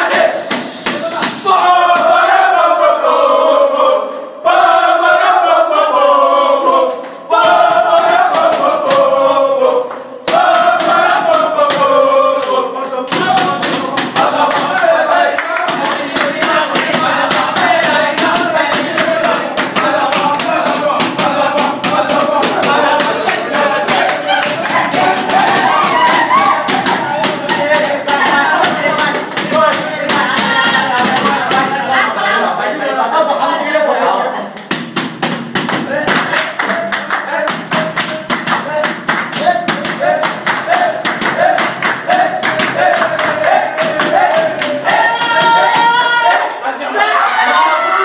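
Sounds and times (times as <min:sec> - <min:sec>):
men singing a chant: 0:00.0 - 0:34.6, 0:35.8 - 0:48.0
sharp hand claps: 0:09.9 - 0:31.7, 0:34.6 - 0:46.6.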